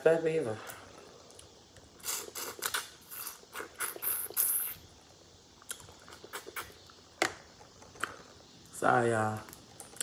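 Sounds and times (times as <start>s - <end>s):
wet mouth smacks: 1.4s - 4.5s, 5.6s - 6.8s.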